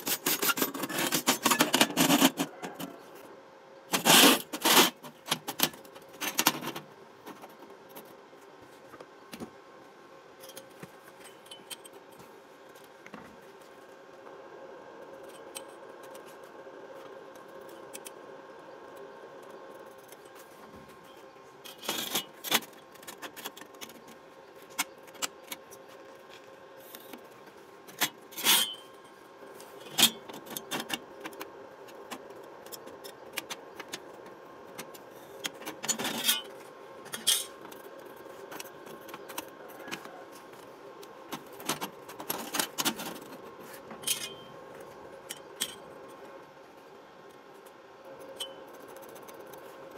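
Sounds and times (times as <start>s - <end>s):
metal tools scratching steel: 0.0s - 3.0s, 28.0s - 29.0s, 35.8s - 36.5s, 37.1s - 37.6s, 44.0s - 44.5s
faint steady hum: 0.0s - 49.9s.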